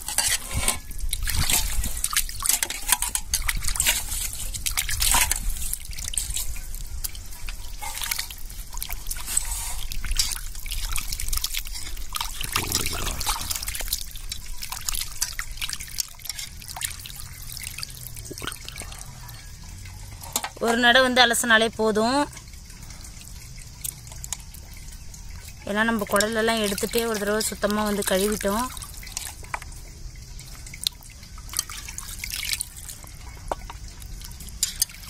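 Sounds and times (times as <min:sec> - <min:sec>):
water dripping and trickling: 0:00.0 - 0:35.0
water splashing in steel basin: 0:00.0 - 0:35.0.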